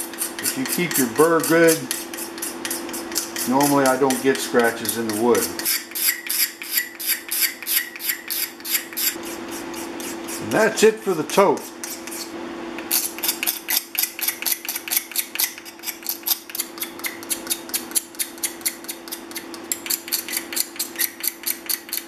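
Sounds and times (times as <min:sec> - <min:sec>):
steady low hum: 0:00.0 - 0:21.8
hand scraper scraping wood: 0:00.0 - 0:22.0.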